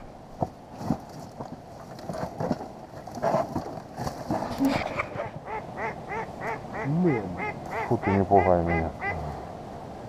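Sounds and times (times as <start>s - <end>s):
duck quacking: 5.4s - 9.3s.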